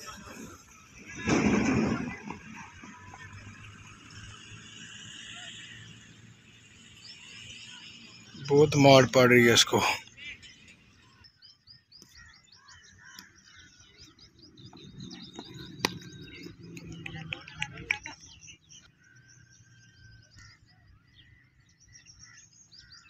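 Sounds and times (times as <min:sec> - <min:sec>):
small birds chirping: 0:02.9 - 0:23.0
cricket bat striking ball: 0:15.3 - 0:16.4.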